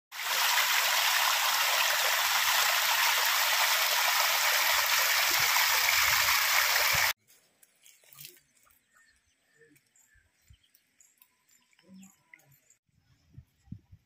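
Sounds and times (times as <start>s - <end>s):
water gushing into concrete tank: 0.1s - 7.2s.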